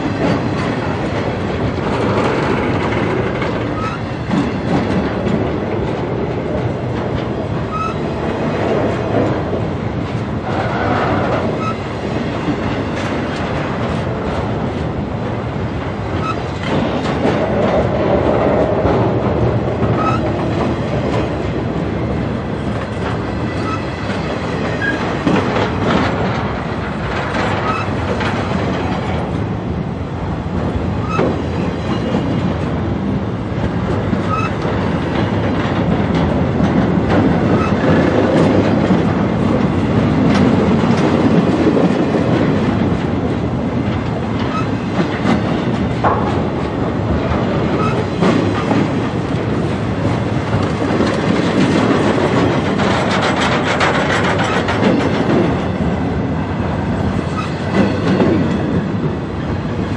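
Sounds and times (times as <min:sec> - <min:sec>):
train wheels rumbling on rails: 0:00.0 - 0:59.9
wheels clacking over rail joints: 0:00.0 - 0:59.9
high wheel squeaks: 0:03.7 - 0:04.2, 0:07.7 - 0:08.0, 0:10.6 - 0:11.9, 0:20.0 - 0:20.3, 0:23.4 - 0:25.0, 0:27.6 - 0:28.0, 0:34.3 - 0:34.6, 0:47.8 - 0:48.1.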